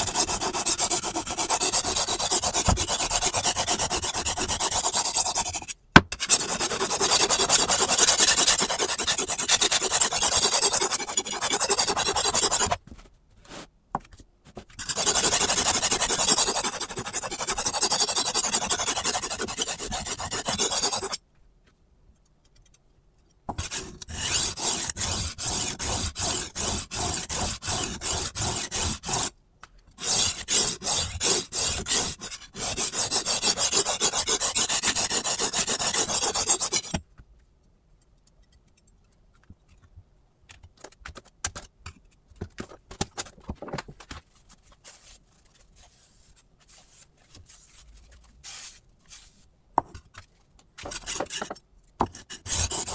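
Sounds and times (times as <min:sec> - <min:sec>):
knife rasping on sharpening stone: 0:14.8 - 0:21.2, 0:30.0 - 0:37.0, 0:50.9 - 0:52.9.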